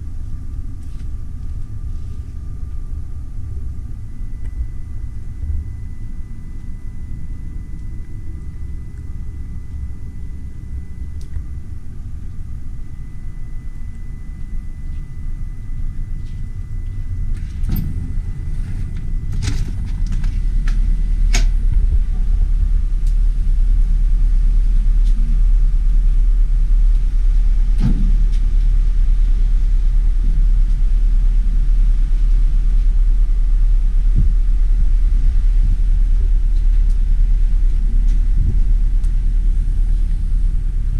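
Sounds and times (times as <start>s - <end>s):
steady low noise with thin whine: 0.0s - 40.9s
wind buffeting microphone: 17.1s - 25.5s, 37.1s - 40.9s.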